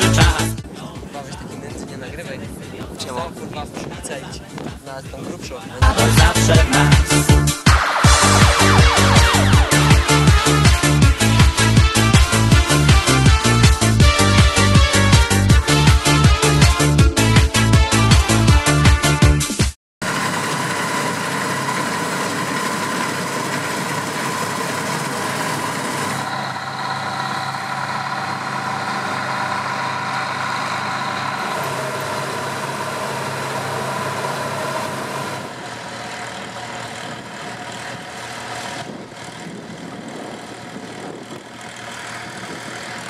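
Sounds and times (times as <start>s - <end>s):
combine harvester engine drone: 5.8s - 17.4s, 20.0s - 43.0s
tractor engine idling: 20.0s - 43.0s.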